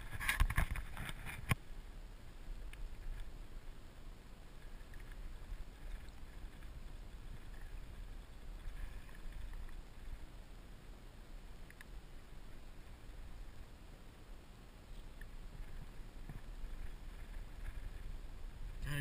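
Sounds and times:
faint lapping water: 0.0s - 19.0s
small clicks: 4.6s - 6.7s, 11.6s - 12.0s.

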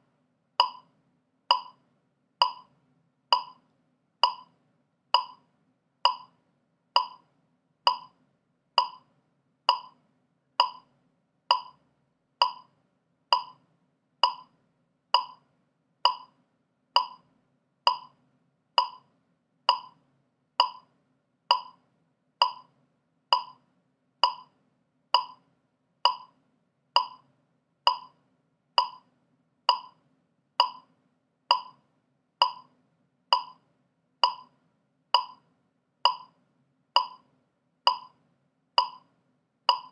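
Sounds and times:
metronome ticking: 0.6s - 0.9s, 1.5s - 1.8s, 2.4s - 6.4s, 7.0s - 8.2s, 8.8s - 9.1s, 9.7s - 10.0s, 10.6s - 10.9s, 11.5s - 11.8s, 12.4s - 13.6s, 14.2s - 17.3s, 17.9s - 18.2s, 18.8s - 19.1s, 19.7s - 20.0s, 20.6s - 20.9s, 21.5s - 21.8s, 22.4s - 23.6s, 24.2s - 25.4s, 26.0s - 26.4s, 27.0s - 28.2s, 28.8s - 29.1s, 29.7s - 30.0s, 30.6s - 30.9s, 31.5s - 31.8s, 32.4s - 32.7s, 33.3s - 35.4s, 36.0s - 36.4s, 37.0s - 37.3s, 37.9s - 38.2s, 38.8s - 39.1s, 39.7s - 39.9s.

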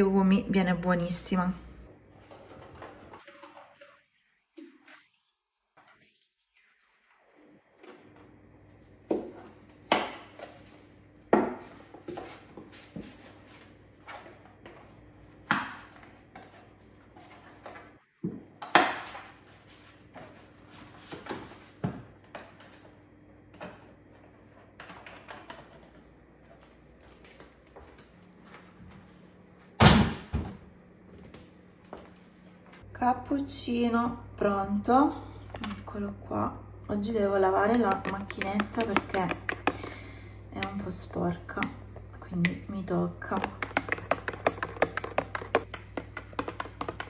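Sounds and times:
faint steady hum: 21.7s - 47.0s.

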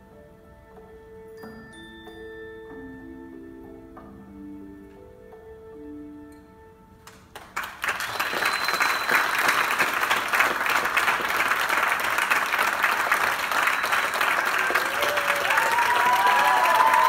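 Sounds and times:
soft music: 0.0s - 17.0s
audience applauding: 7.4s - 17.0s.

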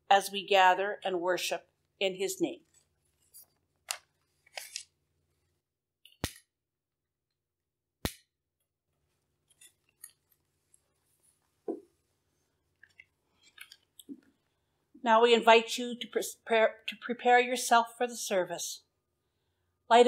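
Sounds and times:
paper rustling: 2.7s - 4.9s.

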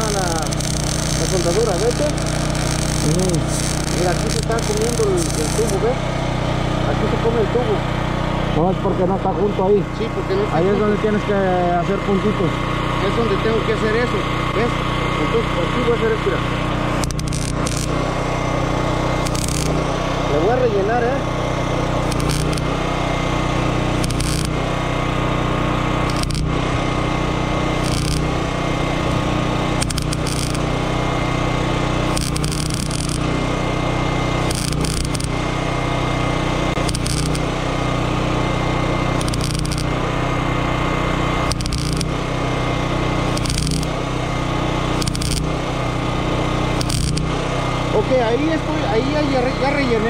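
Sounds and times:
welding hiss: 0.0s - 5.8s, 16.9s - 20.0s, 21.9s - 24.8s, 26.0s - 35.8s, 36.7s - 38.0s, 38.9s - 40.1s, 41.4s - 47.4s
welding arc crackle: 0.0s - 6.1s, 16.5s - 20.5s, 21.2s - 48.8s
engine drone: 0.0s - 50.0s.

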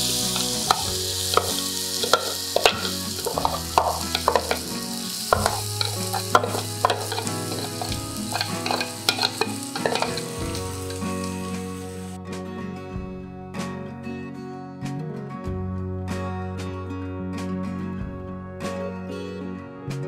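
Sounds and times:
vegetables sizzling in frying pan: 0.0s - 12.2s.

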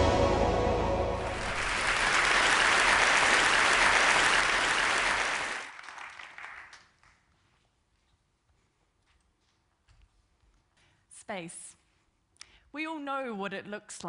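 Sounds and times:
short intro music: 0.0s - 3.3s
audience applauding: 1.2s - 7.3s.

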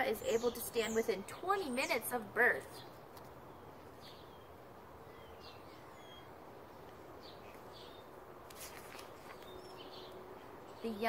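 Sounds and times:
small birds chirping: 0.0s - 11.0s.

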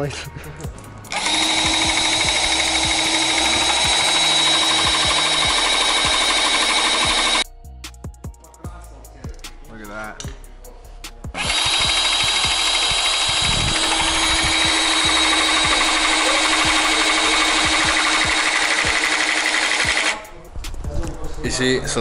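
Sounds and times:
rivet gun motor running: 1.1s - 7.4s, 11.4s - 20.2s.

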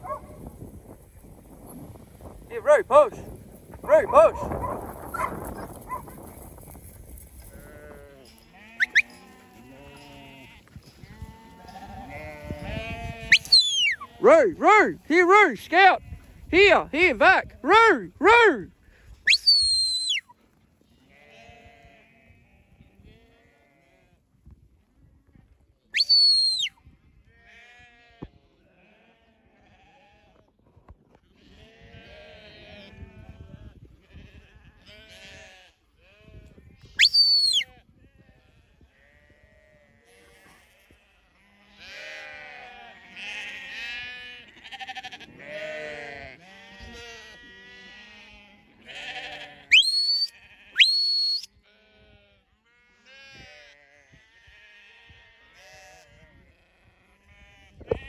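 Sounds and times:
sheep bleating: 7.5s - 18.7s, 20.8s - 24.1s, 27.4s - 30.3s, 31.3s - 36.4s, 39.0s - 58.0s
high whistles gliding down: 13.3s - 14.0s.

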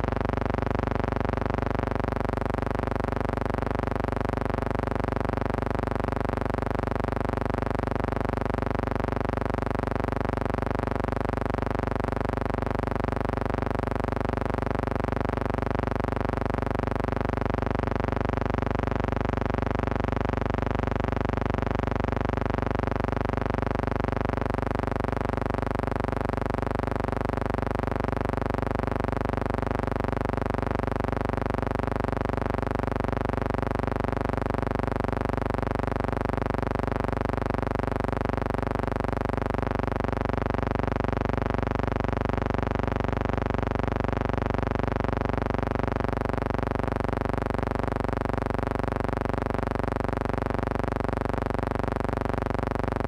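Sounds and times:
steady electrical hum: 0.0s - 53.0s.

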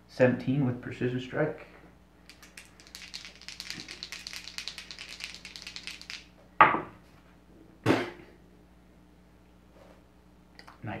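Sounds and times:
dice rattling in hand: 2.3s - 6.3s.

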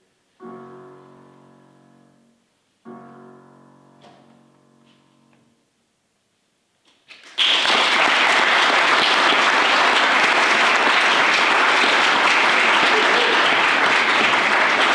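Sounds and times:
keyboard chord: 0.4s - 5.7s
audience applause: 7.1s - 14.9s.

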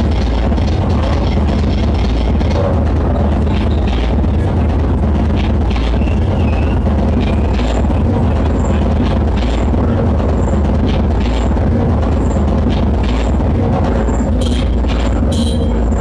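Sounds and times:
techno over club sound system: 0.0s - 16.0s.

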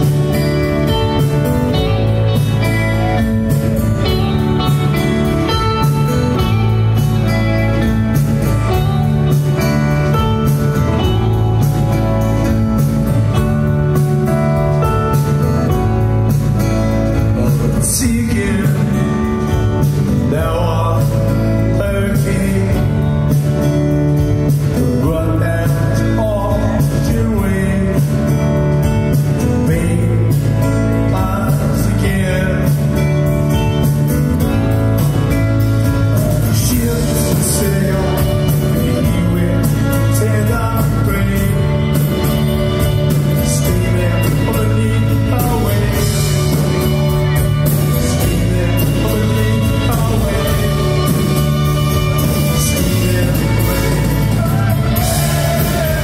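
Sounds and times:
electric guitar: 0.0s - 56.0s
sustained bass notes: 0.0s - 56.0s
man singing into a microphone: 17.1s - 23.6s, 24.6s - 33.4s, 35.8s - 56.0s.

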